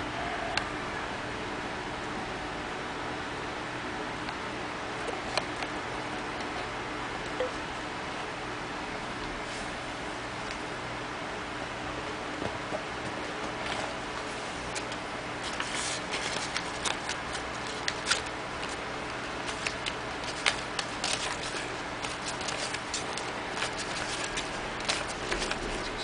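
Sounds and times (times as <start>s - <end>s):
banknotes rustling and crackling: 13.4s - 26.0s.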